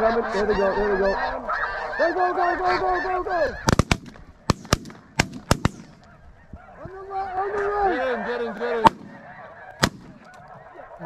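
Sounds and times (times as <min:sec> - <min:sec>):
geese honking: 0:00.0 - 0:11.0
shotgun shots: 0:03.7 - 0:06.1, 0:08.8 - 0:10.3.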